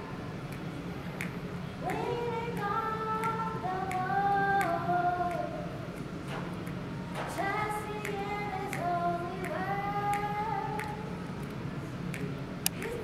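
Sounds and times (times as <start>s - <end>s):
children's choir singing: 1.8s - 5.8s, 7.0s - 11.0s.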